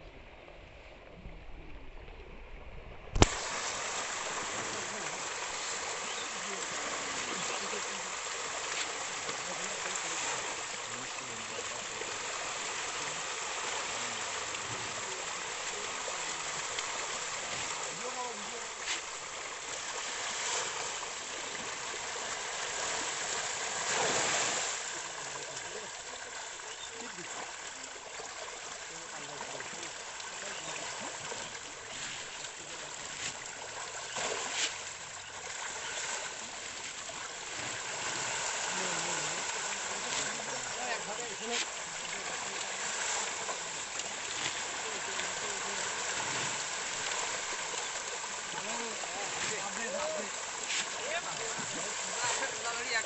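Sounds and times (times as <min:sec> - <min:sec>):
fish splashing at water surface: 0:03.1 - 0:53.0.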